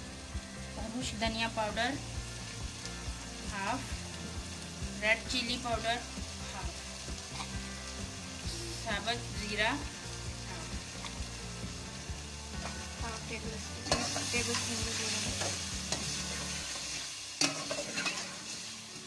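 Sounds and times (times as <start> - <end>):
food sizzling in oil: 0.0 - 19.0
metal spoon scraping a pot: 15.4 - 18.6.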